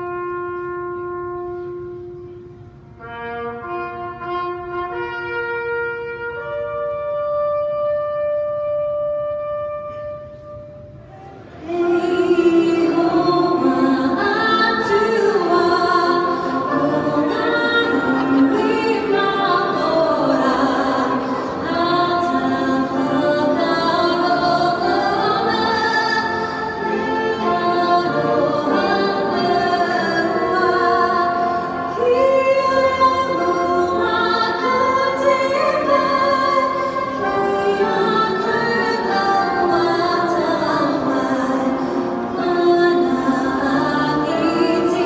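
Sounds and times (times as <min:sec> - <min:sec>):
music: 0:00.0 - 0:45.0
woman singing with choir: 0:11.6 - 0:45.0.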